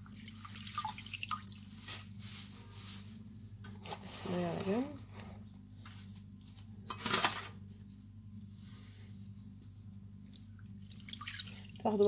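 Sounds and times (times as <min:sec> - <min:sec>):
steady low hum: 0:00.0 - 0:12.0
wet herbs rustling in colander: 0:00.7 - 0:03.3.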